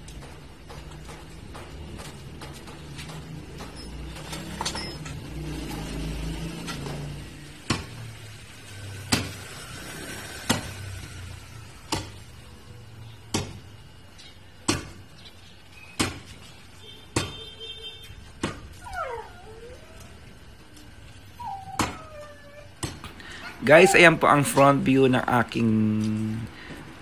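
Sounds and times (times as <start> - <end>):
dog whining: 18.7 - 24.6.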